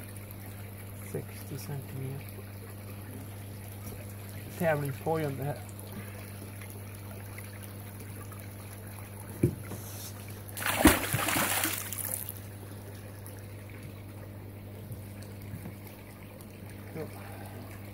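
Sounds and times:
faint trickle of water: 0.0 - 10.6, 11.4 - 17.9
steady low hum: 0.0 - 17.9
fish splashing into a pond: 10.5 - 12.5.

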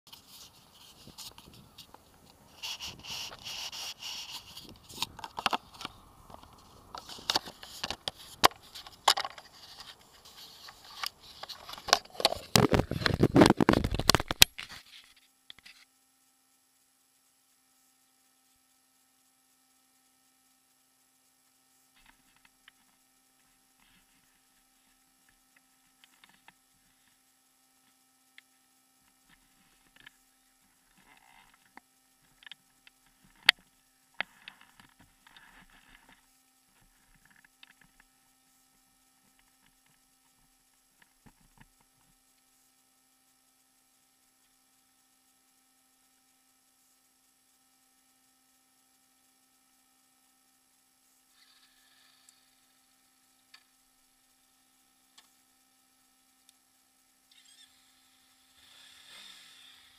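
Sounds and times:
faint ticks: 0.1 - 59.9
camera handling noise: 2.6 - 15.9.

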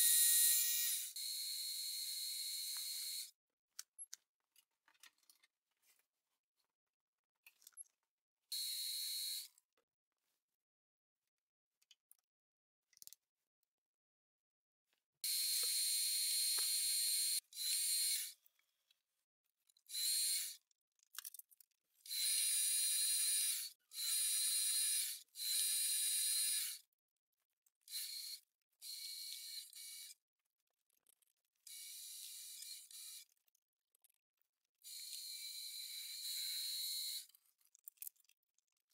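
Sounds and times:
drill bit cutting metal: 0.0 - 3.3, 15.3 - 18.3, 19.9 - 20.6, 22.1 - 26.8, 27.9 - 30.1, 31.7 - 33.2, 34.9 - 37.3.

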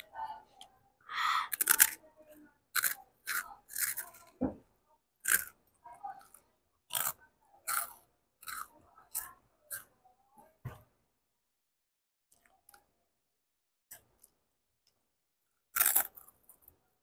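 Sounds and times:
child chewing crunchy snack: 0.6 - 2.0, 2.7 - 4.4, 5.2 - 9.9, 13.9 - 16.9.

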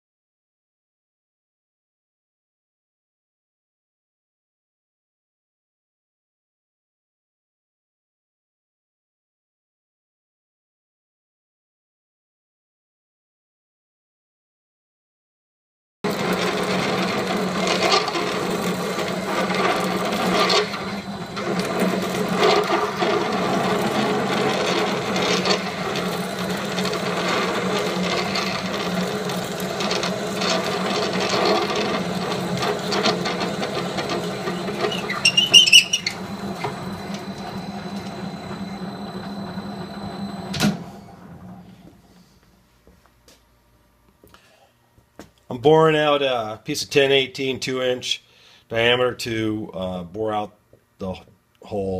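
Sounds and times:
drill grinding into steel: 16.1 - 40.5
metal lathe humming: 16.1 - 41.8
high squeal from cut: 34.5 - 37.0.

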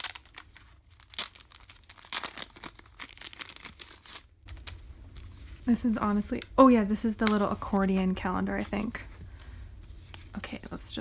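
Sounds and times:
plastic wrapper tearing and crinkling: 0.0 - 8.2.

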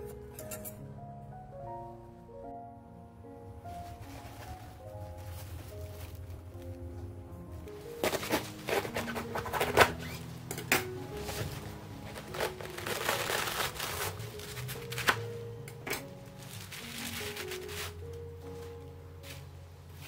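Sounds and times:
soft background music: 0.0 - 20.0
cabbage leaves ripping: 12.1 - 15.3, 16.4 - 18.1.

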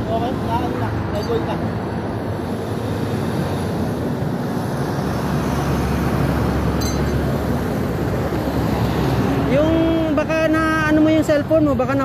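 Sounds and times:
road traffic passing: 0.0 - 12.0
vehicle approaching with low rumble: 0.0 - 12.0.

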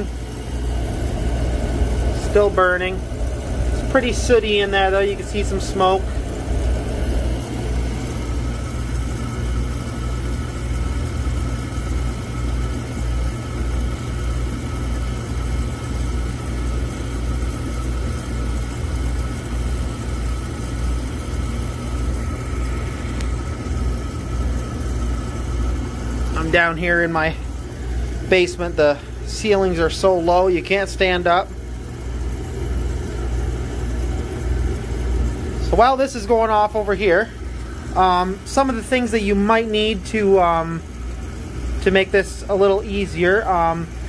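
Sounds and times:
faint steady whine: 0.0 - 44.0
oil burner drone: 0.0 - 44.0.

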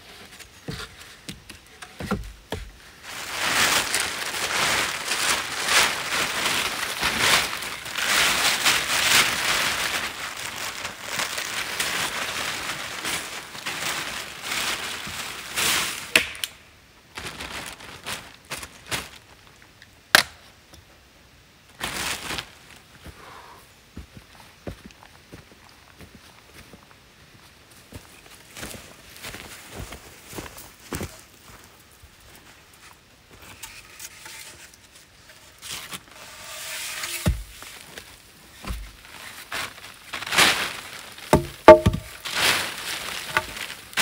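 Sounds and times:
plastic tarp rustling: 2.8 - 16.2, 17.1 - 19.6, 21.7 - 22.8, 33.3 - 44.0.

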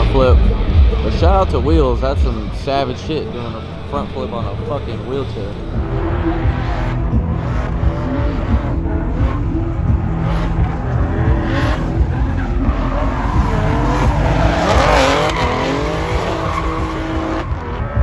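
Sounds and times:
car engine at high revs: 0.0 - 18.0
tyres squealing: 10.6 - 17.7.

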